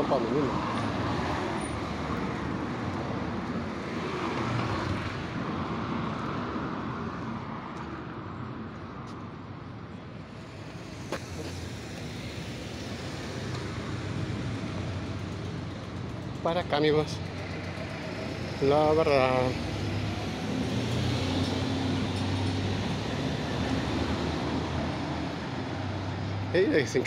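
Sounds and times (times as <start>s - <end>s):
cars driving past: 0.0s - 27.0s.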